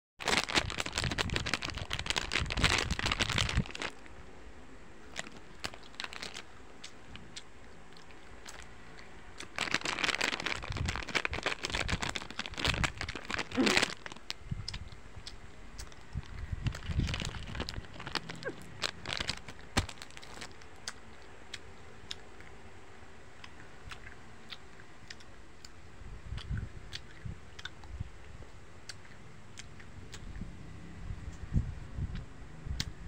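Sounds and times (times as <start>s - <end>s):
plastic bag crinkling: 0.2s - 4.0s, 5.0s - 6.6s, 9.4s - 14.4s, 15.8s - 20.6s.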